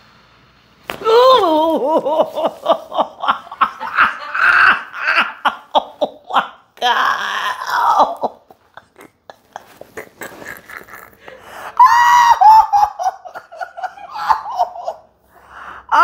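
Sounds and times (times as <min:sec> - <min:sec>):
woman laughing high squealing: 0:01.1 - 0:05.6, 0:11.8 - 0:15.0.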